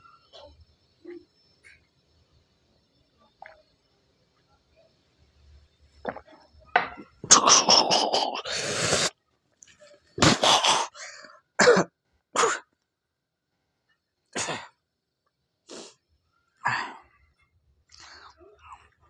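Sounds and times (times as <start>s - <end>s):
man coughing hard: 11.6s - 12.6s.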